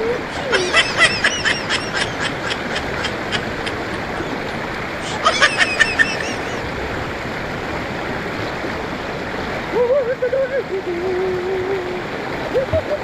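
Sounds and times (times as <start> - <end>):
river rapids rushing over rocks: 0.0 - 13.0
high-pitched laughter: 0.2 - 4.4, 5.0 - 6.6.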